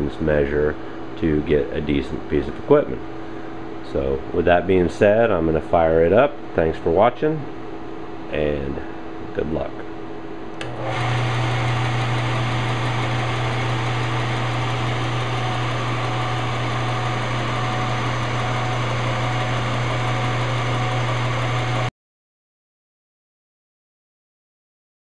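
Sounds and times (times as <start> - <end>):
belt and disc sander running: 10.6 - 21.9.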